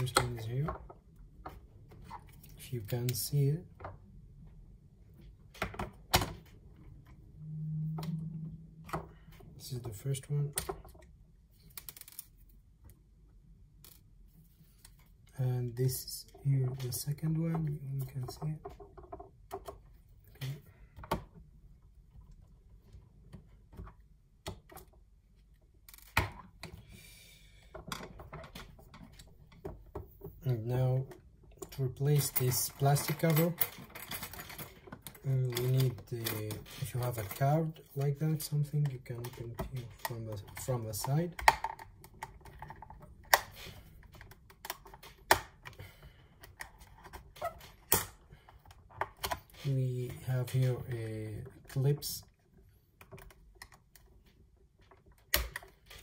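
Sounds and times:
plastic parts clicking and knocking: 0:05.2 - 0:07.1, 0:08.8 - 0:13.0, 0:15.9 - 0:21.5, 0:22.1 - 0:25.2, 0:25.8 - 0:27.0, 0:27.6 - 0:56.0.

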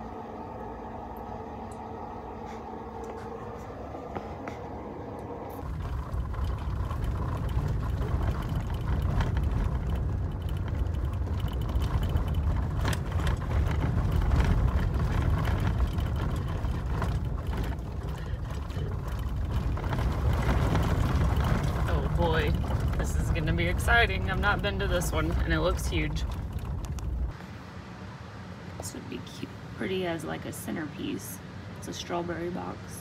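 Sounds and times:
car road and engine rumble: 0:00.0 - 0:33.0
small knocks and rattles: 0:05.5 - 0:27.4.

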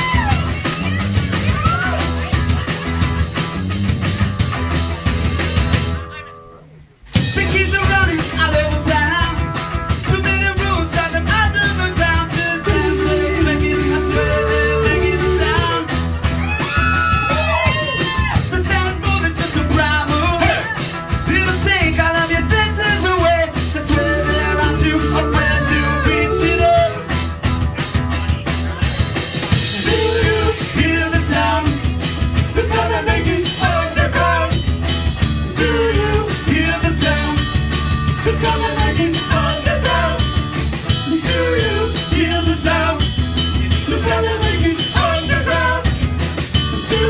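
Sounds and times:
bass guitar: 0:00.0 - 0:47.0
drums with steady beat: 0:00.0 - 0:47.0
electric guitar: 0:00.0 - 0:47.0
rock band playing: 0:00.0 - 0:47.0
man singing into a microphone: 0:07.3 - 0:16.0, 0:18.1 - 0:27.1, 0:29.7 - 0:31.9, 0:32.5 - 0:34.6, 0:35.4 - 0:37.5, 0:38.2 - 0:40.3, 0:40.9 - 0:46.0.

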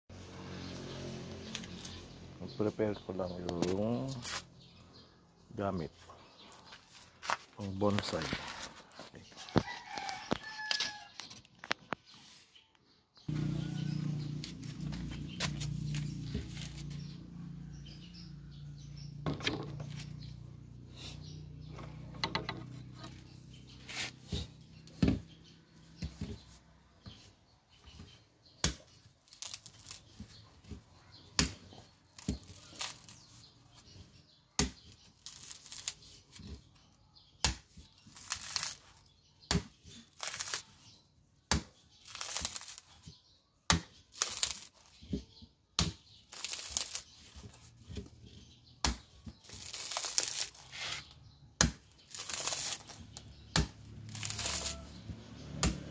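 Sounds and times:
husk fibres scraping and splitting: 0:13.3 - 0:17.2, 0:28.9 - 0:34.0, 0:34.6 - 0:36.9, 0:37.8 - 0:55.9.

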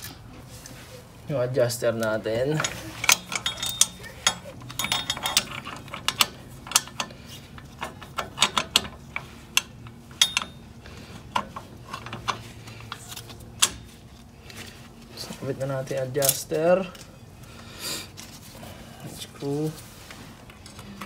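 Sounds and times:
metal parts clinking: 0:02.5 - 0:13.9.

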